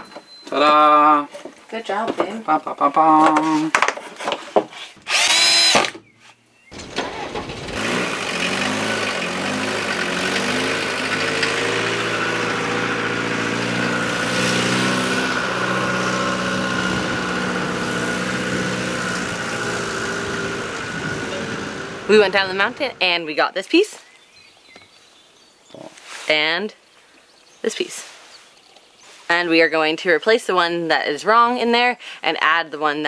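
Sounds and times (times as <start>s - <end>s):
diesel van engine running: 6.8s - 23.1s.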